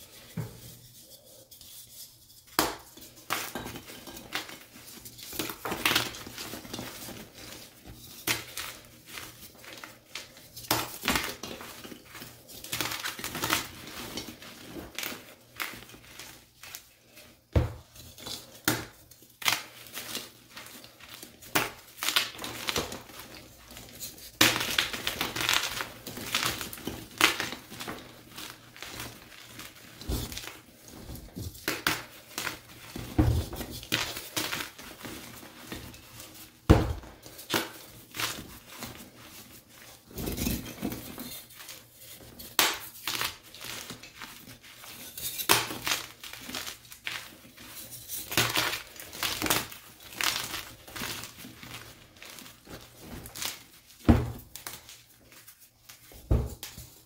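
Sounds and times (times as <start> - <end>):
chalk crushed between hands: 31.6 - 53.8.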